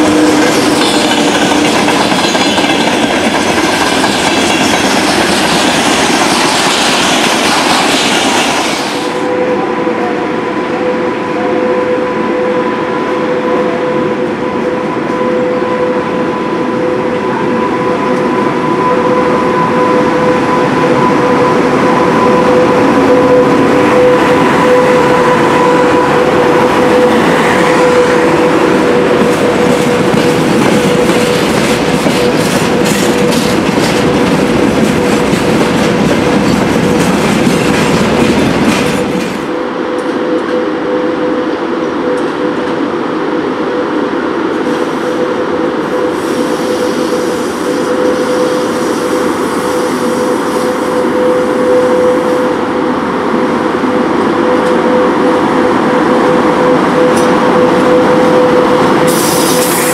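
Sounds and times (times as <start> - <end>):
electric locomotive hum: 0.0 - 59.9
train wheels clattering over rail joints: 0.1 - 9.0, 29.2 - 39.5.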